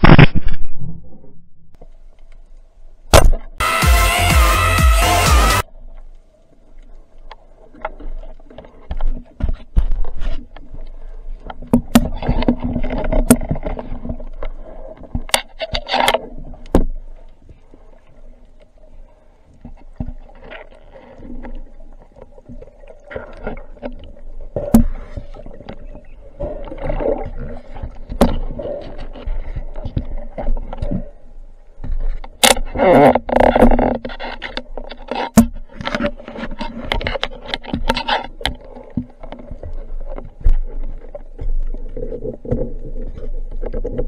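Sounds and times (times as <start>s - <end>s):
churning water underwater: 5.6s - 44.0s.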